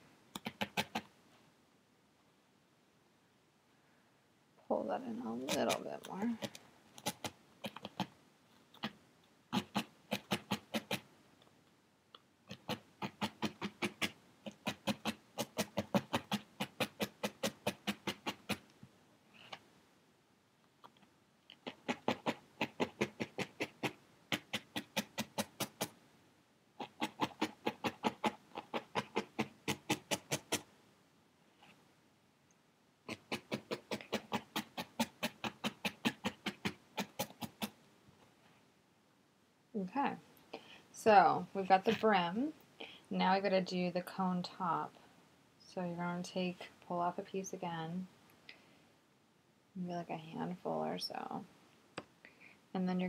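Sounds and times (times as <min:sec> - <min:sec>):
felting needle stabbing foam: 0:00.3 - 0:01.1, 0:05.2 - 0:11.1, 0:12.4 - 0:18.8, 0:20.9 - 0:26.0, 0:26.8 - 0:30.7, 0:33.1 - 0:37.8.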